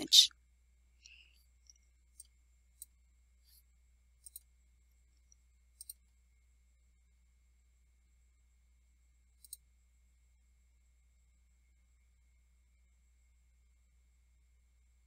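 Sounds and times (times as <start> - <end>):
computer mouse clicks: 4.2 - 4.5, 5.8 - 6.0, 9.4 - 9.7.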